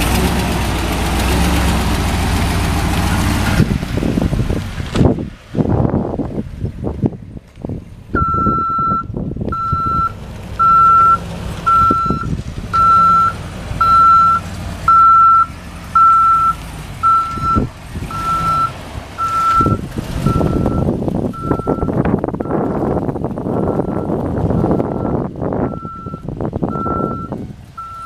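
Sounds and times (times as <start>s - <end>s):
truck engine running: 0.0s - 28.0s
backup alarm beeping: 8.2s - 22.6s, 24.8s - 28.0s.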